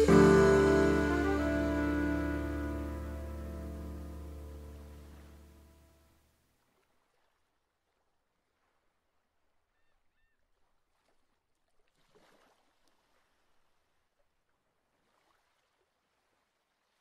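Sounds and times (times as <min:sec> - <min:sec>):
faint background hiss: 0:00.0 - 0:06.2.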